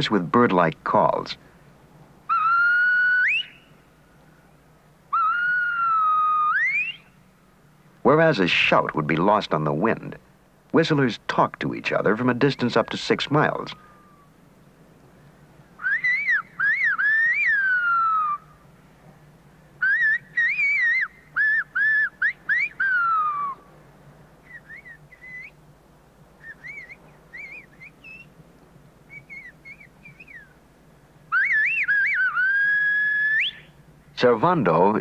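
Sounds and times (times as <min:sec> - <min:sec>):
man whistling through fingers: 0:02.3 - 0:03.7, 0:05.2 - 0:07.1, 0:15.8 - 0:18.4, 0:19.8 - 0:23.6, 0:24.4 - 0:25.6, 0:26.4 - 0:28.3, 0:29.1 - 0:30.5, 0:31.3 - 0:33.7
faint whistled phrases: 0:02.3 - 0:03.8, 0:04.4 - 0:07.2, 0:15.8 - 0:18.6, 0:19.8 - 0:23.7, 0:24.4 - 0:25.6, 0:26.4 - 0:28.4, 0:29.1 - 0:30.6, 0:31.3 - 0:33.8.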